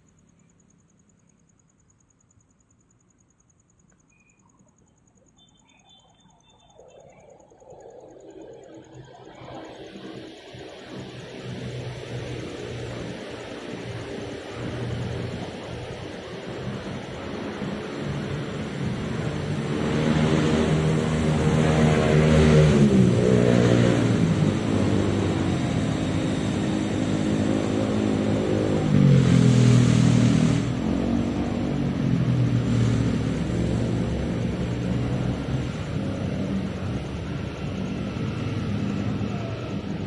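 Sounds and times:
motorcycle engines revving: 0:08.0 - 0:40.0.

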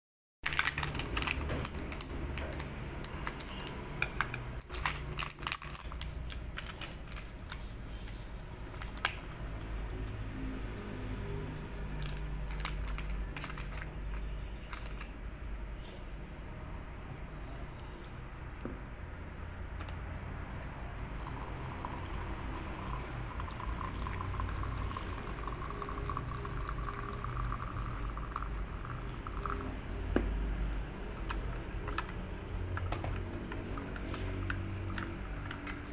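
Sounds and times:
water trickling from watering can: 0:21.1 - 0:29.9.

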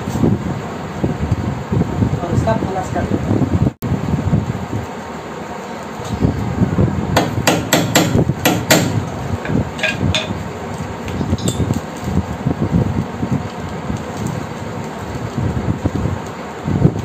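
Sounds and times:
hammer striking metal fastener: 0:07.2 - 0:09.0.

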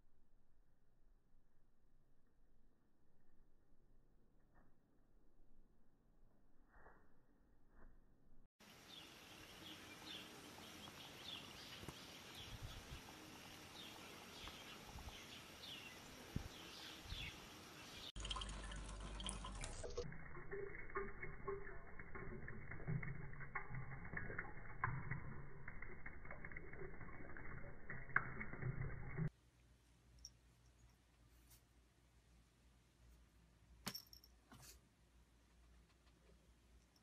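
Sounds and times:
birds chirping: 0:08.7 - 0:20.0
water running from a tap: 0:18.1 - 0:29.3.

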